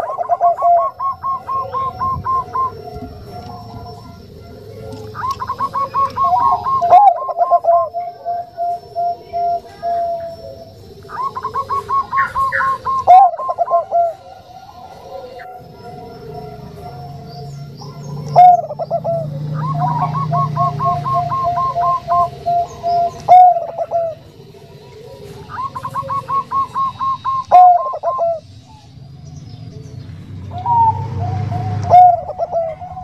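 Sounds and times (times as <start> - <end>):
dove cooing: 0.0 - 33.0.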